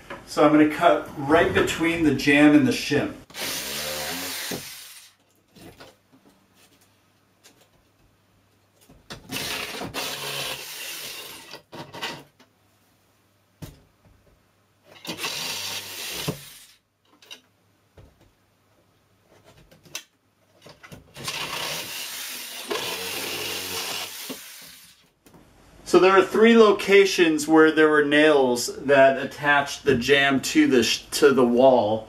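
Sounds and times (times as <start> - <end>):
reciprocating saw cutting nails: 3.3 - 5.2, 9.3 - 11.6.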